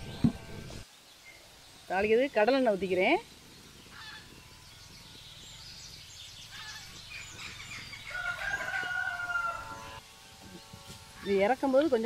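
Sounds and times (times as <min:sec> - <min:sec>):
rooster crowing: 0:07.9 - 0:10.0.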